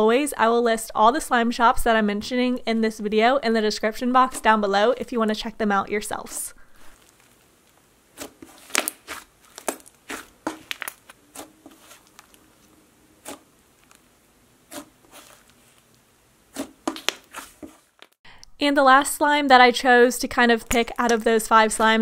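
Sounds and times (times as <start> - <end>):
slime squished by hand popping: 8.2 - 11.1.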